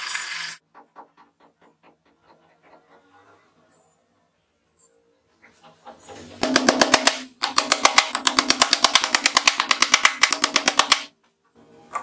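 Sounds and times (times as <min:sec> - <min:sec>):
hammer tapping plywood: 0:06.4 - 0:11.1.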